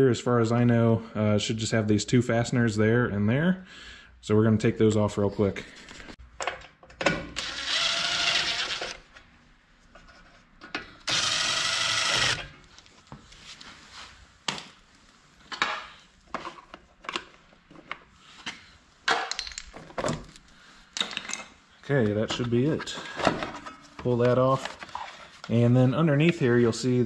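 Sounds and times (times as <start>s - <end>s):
power driver spinning out fasteners: 11.1s - 12.5s.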